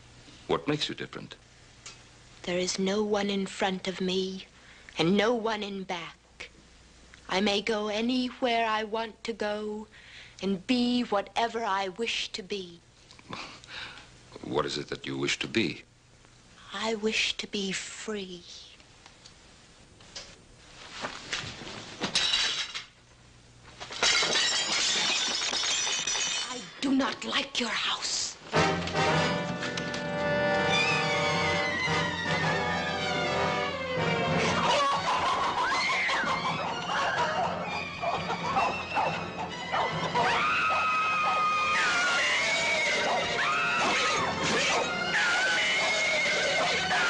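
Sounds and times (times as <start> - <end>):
objects clattering: 21.4 - 23.0, 23.8 - 26.8
glass breaking: 22.1 - 22.9, 23.9 - 26.8
background music: 28.5 - 47.0
horses whinnying and squealing: 33.7 - 47.0.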